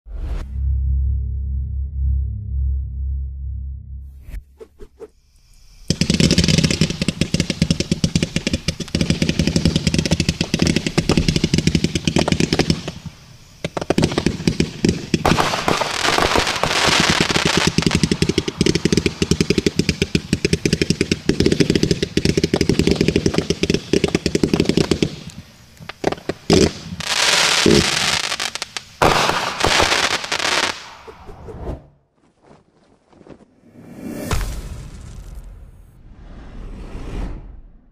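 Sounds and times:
crackling firework bursts: 4.6s - 31.5s, 33.6s - 36.6s
firework cake firing shots: 13.7s - 25.3s, 29.0s - 31.3s.

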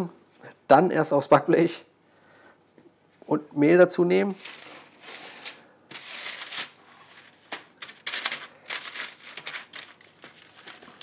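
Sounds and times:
baking paper crinkling: 4.3s - 11.0s.

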